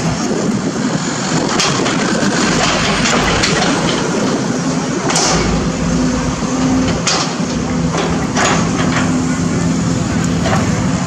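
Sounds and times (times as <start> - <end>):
excavator diesel engine running: 0.0 - 11.0
sharp metal clanks: 1.6 - 9.2.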